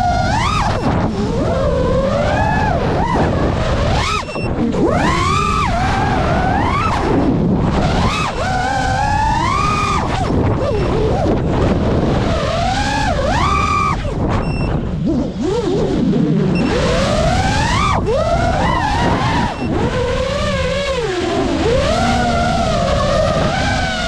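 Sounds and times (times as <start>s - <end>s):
drone motors whining: 0.0s - 24.0s
wind rushing on microphone: 0.0s - 24.0s.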